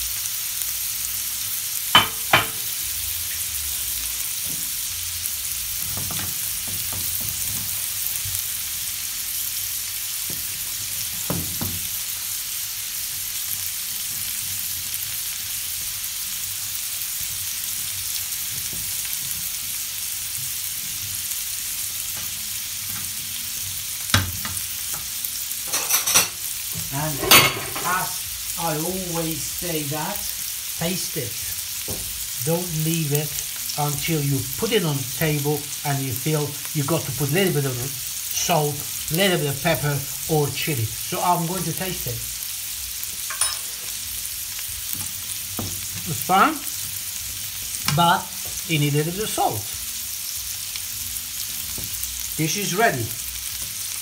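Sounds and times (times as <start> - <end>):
food sizzling in frying pan: 0.0 - 54.0
spatula knocking against pan: 2.0 - 2.6.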